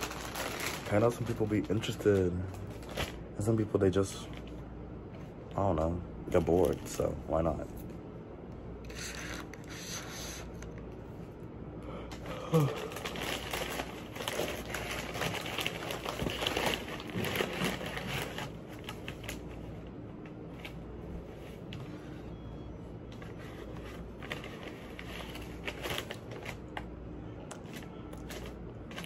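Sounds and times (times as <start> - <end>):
packaging crinkling and rustling: 0.0 - 4.7, 6.3 - 7.2, 12.1 - 20.9, 23.1 - 29.0.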